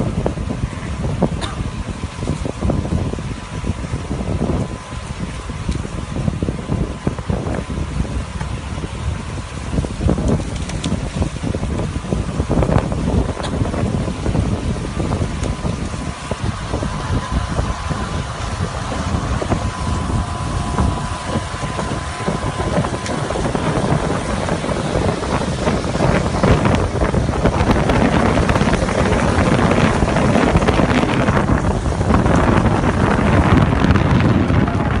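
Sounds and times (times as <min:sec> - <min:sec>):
steady low rumble: 0:00.0 - 0:35.0
wind buffeting microphone: 0:00.0 - 0:35.0.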